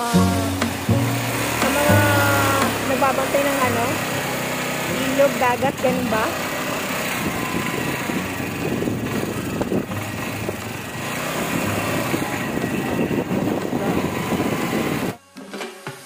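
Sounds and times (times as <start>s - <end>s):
music: 0.0s - 4.0s, 15.0s - 16.0s
motorcycle engine cruising: 0.0s - 15.2s
road and wind noise: 0.0s - 15.2s.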